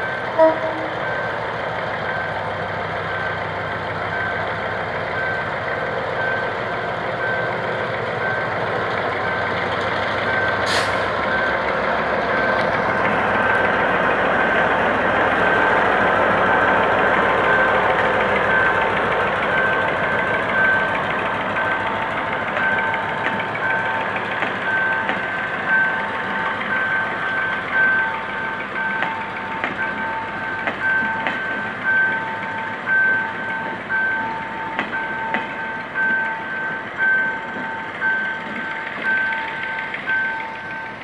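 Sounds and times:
diesel locomotive engine: 0.0 - 41.0
train wheels clacking over rails: 0.0 - 41.0
level crossing alarm beeping: 10.2 - 11.7, 17.0 - 41.0.

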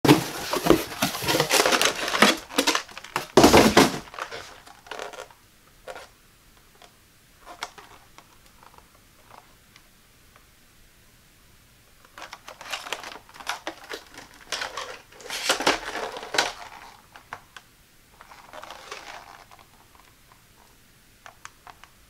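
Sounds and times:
cardboard rustling and scraping: 0.0 - 5.3, 12.2 - 17.4, 18.2 - 20.2.

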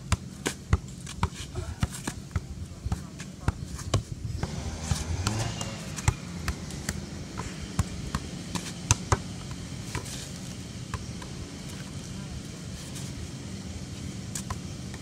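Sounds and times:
ball bouncing: 3.9 - 10.2.

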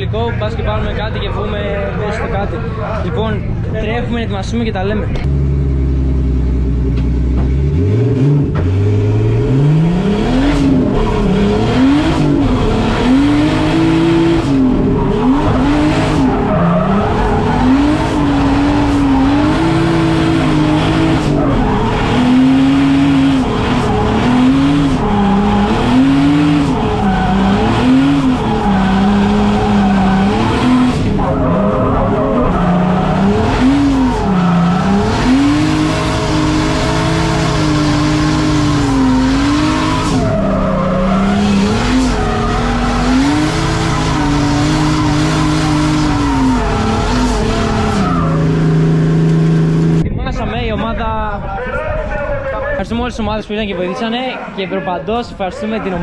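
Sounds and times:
car engine idling and revving: 0.0 - 56.0
tyre squeal: 10.9 - 48.6.

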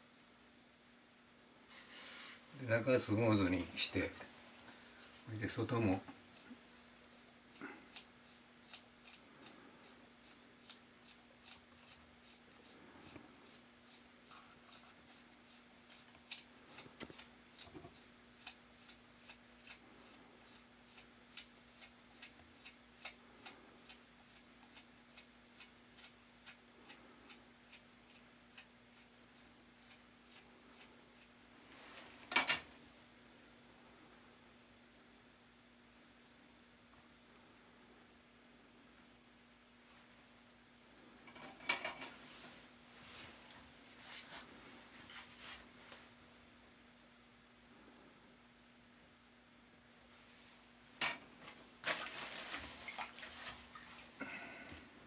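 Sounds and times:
hand tool scraping damp clay: 6.3 - 26.6.

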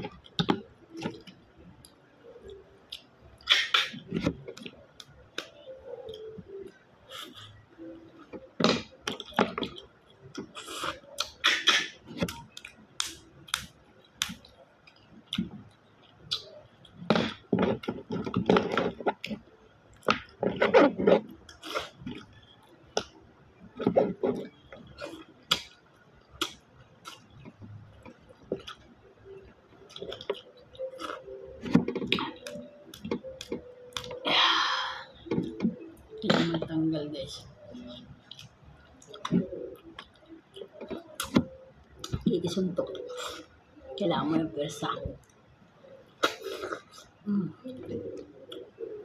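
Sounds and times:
chewing: 9.0 - 34.2.

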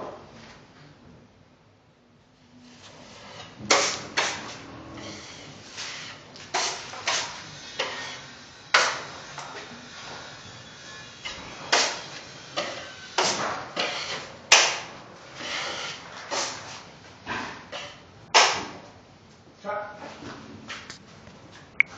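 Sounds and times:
taping knife scraping compound: 2.6 - 16.9.

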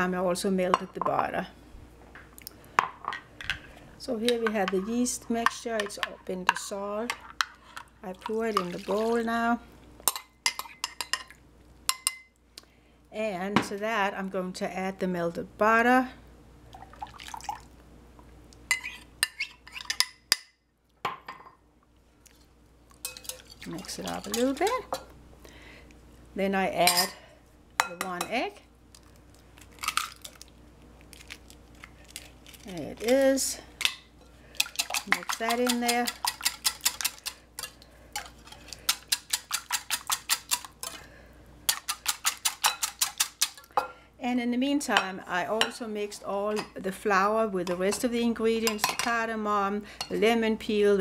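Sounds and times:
butter scraped and stirred: 22.3 - 25.0, 34.2 - 41.1
metal spoon clinking glass bowl: 23.0 - 24.5
whisk clicking against glass bowl: 34.6 - 37.3, 38.9 - 40.6.

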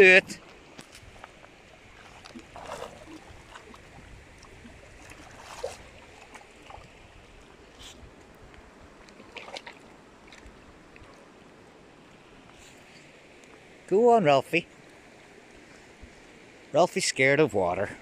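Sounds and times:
river flowing over stones: 0.0 - 18.0
dog splashing in water: 2.0 - 3.8.

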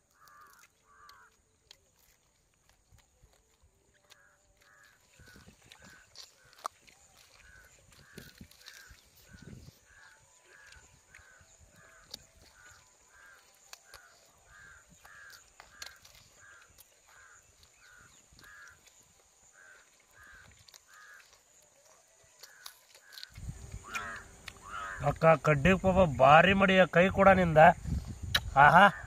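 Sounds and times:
bird harsh calls: 4.2 - 18.9, 22.5 - 25.2.

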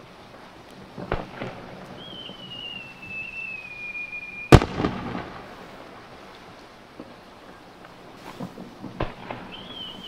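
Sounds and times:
firework whistle: 1.9 - 5.5, 9.3 - 10.0
firework bang: 4.5 - 5.7.

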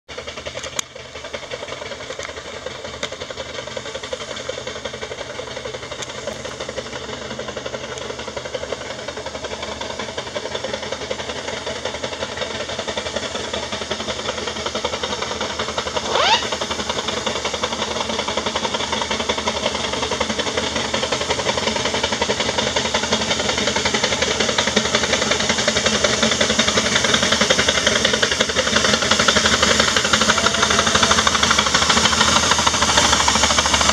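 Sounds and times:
steam engine exhaust beats: 0.1 - 33.9
rising steam whistle: 15.9 - 16.9, 28.9 - 33.9
steam hiss: 23.8 - 33.9.

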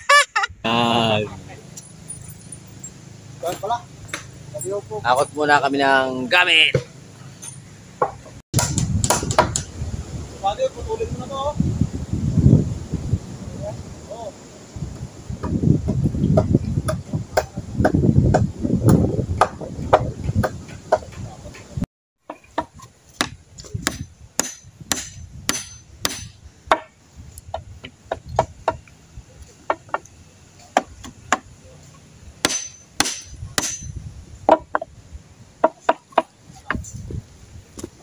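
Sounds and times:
claw hammer striking timber: 8.0 - 9.7, 22.3 - 26.9, 30.7 - 31.5, 32.4 - 34.9
wind buffeting microphone: 8.6 - 21.9, 23.2 - 29.5, 33.2 - 35.6, 36.2 - 38.0.

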